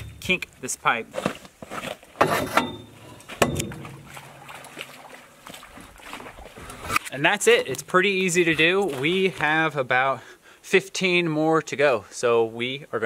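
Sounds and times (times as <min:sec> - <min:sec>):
sharp metal knocks: 0:00.0 - 0:00.6, 0:02.2 - 0:04.2
pipe scraping and creaking in bender: 0:01.2 - 0:04.2.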